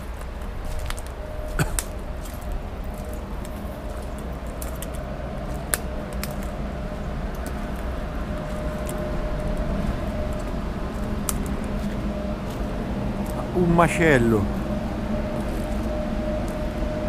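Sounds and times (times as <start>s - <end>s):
footsteps on muddy path: 0.0s - 5.7s, 8.4s - 13.8s
faint hum: 0.0s - 17.0s
low microphone rumble: 0.0s - 17.0s
sticks snapping underfoot: 0.2s - 6.6s, 7.3s - 9.6s, 10.3s - 12.6s.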